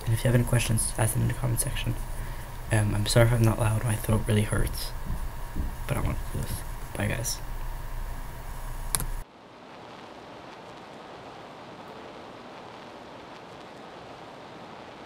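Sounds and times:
microphone hum and hiss: 0.0 - 15.0
steady even hiss: 0.0 - 15.0
sharp click: 8.9 - 9.2.

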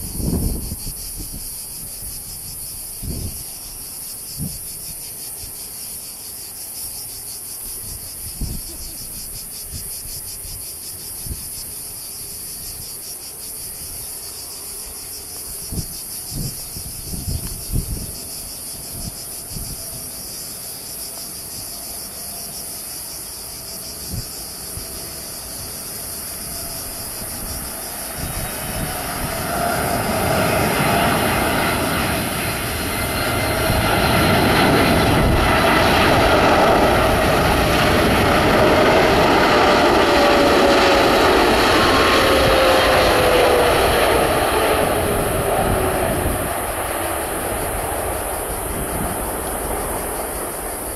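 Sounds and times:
insects buzzing: 0.0 - 50.9
jet engines whining: 24.8 - 50.9.

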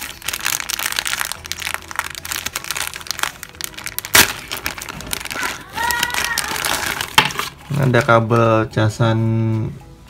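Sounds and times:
plastic bag crinkling: 0.0 - 8.5
loud sharp crack of plastic: 0.8 - 7.6.

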